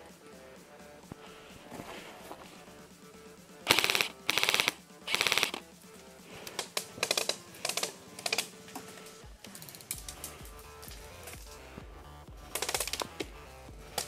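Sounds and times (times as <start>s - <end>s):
airsoft rifle firing bursts: 3.7s - 5.7s, 6.6s - 8.5s, 12.4s - 14.0s.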